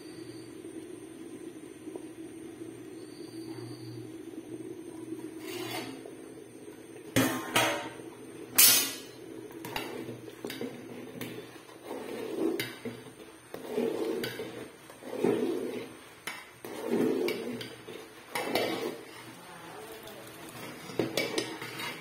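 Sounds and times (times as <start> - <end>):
ladle scraping inside pot: 5.4 - 6.1, 8.6 - 19.4, 20.2 - 22.0.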